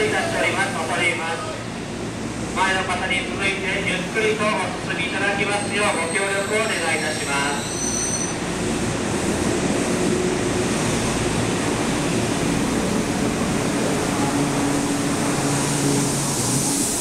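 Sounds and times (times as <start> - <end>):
hiss: 15.4 - 17.0.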